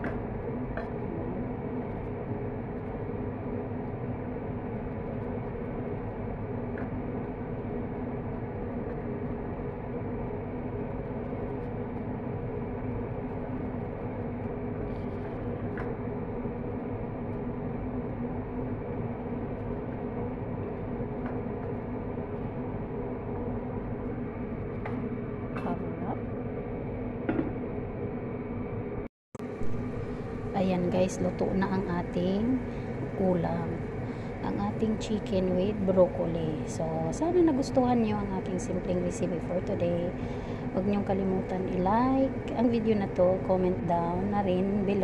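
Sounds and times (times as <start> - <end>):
mechanical hum: 0.0 - 45.0.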